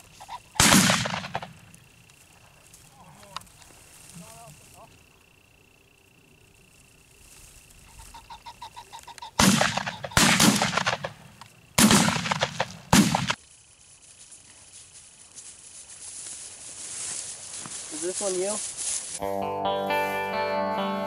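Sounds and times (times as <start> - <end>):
shotgun shots: 0.6 - 1.6, 9.4 - 13.4
bird clucking call: 7.9 - 10.2.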